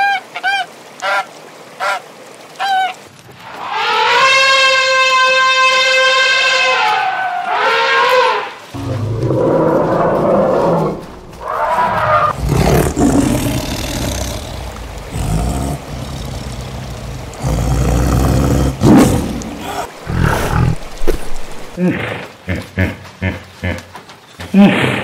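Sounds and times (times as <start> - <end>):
tiger growling and roaring: 8.7 - 22.7.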